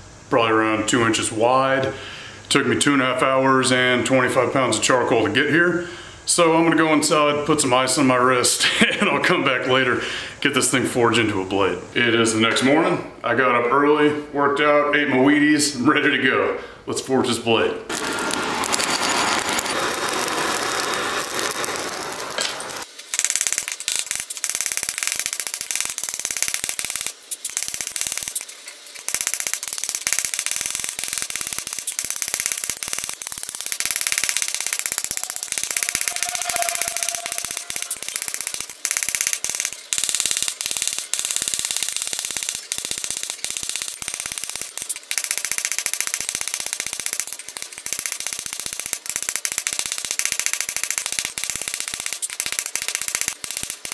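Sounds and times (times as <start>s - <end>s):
forge air blast rushing: 35.0s - 38.6s.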